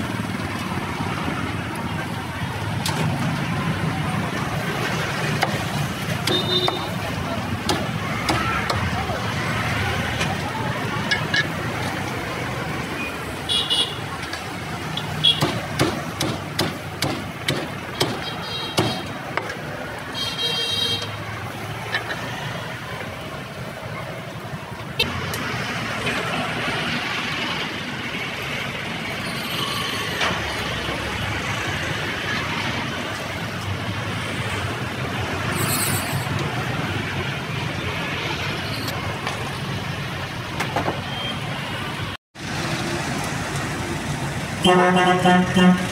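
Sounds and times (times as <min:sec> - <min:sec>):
motorbikes passing: 0:00.0 - 0:40.6, 0:41.4 - 0:45.9
street traffic: 0:00.0 - 0:45.9
cleaver chopping on wooden block: 0:15.4 - 0:18.2.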